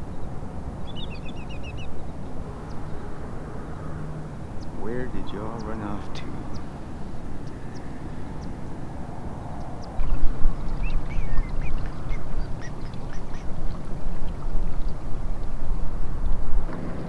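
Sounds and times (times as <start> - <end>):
wind and water rumble: 0.0 - 17.0
short bird calls: 10.7 - 13.5.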